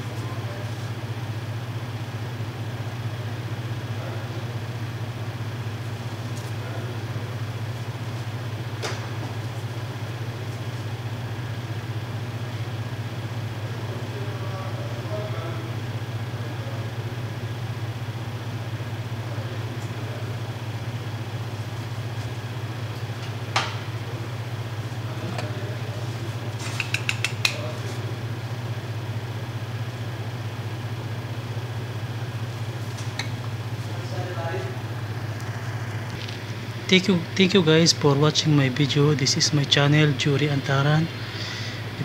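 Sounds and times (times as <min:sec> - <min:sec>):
low mechanical hum: 0:00.0 - 0:42.0
kitchen utensils clicking: 0:26.6 - 0:27.7.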